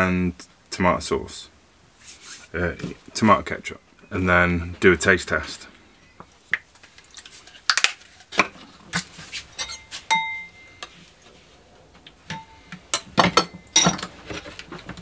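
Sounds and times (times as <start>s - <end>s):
spoon clinking against ceramic bowl: 9.5s - 10.9s, 12.3s - 14.0s.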